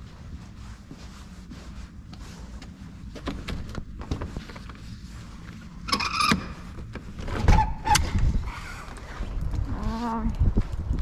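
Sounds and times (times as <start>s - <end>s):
door squeak: 5.9s - 6.6s, 7.4s - 8.2s.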